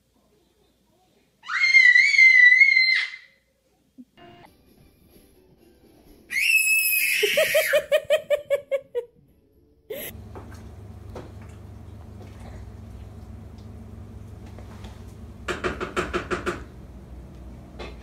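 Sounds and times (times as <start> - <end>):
child squealing: 1.4 - 3.4, 6.3 - 7.9
child giggling: 7.1 - 9.1, 9.9 - 10.1
steady low hum: 9.4 - 15.6.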